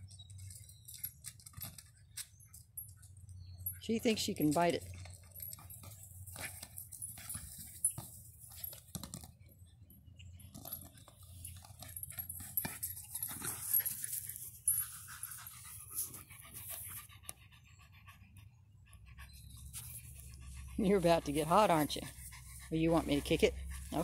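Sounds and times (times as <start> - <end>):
small dog panting: 11.8 - 24.0.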